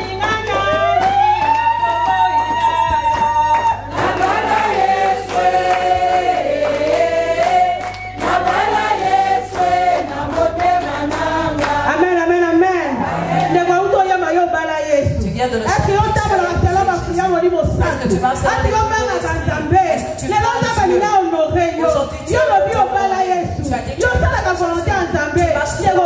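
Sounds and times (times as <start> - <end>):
gospel choir singing: 3.8 - 14.0.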